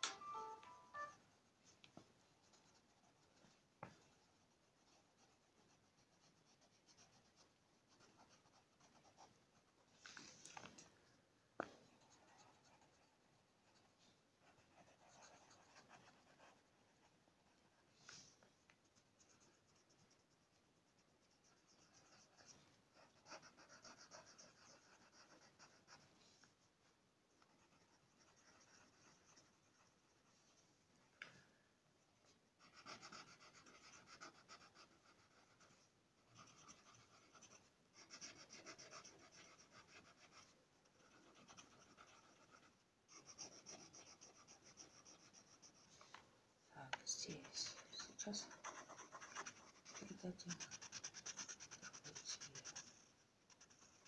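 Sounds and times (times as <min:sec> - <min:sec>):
pencil scratching on paper: 0:01.7 - 0:10.0, 0:11.6 - 0:26.5, 0:27.4 - 0:30.6, 0:32.6 - 0:46.2, 0:47.1 - 0:54.0.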